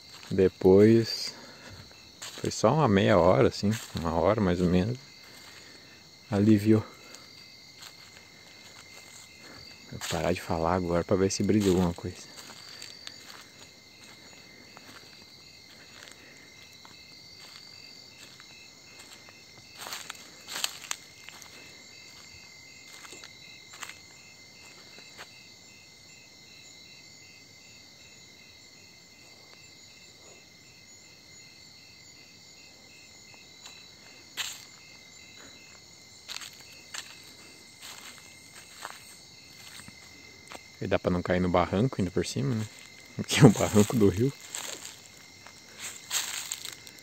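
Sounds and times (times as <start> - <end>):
footsteps on dirt track: 0.0 - 25.4, 33.4 - 40.8, 42.5 - 47.0
insect chirping: 0.0 - 47.0
insects trilling: 0.0 - 47.0.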